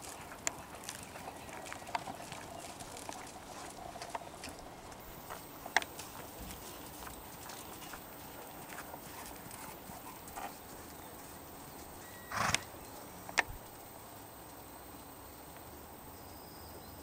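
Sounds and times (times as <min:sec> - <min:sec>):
horse hoofbeats on sand: 0:00.0 - 0:13.6.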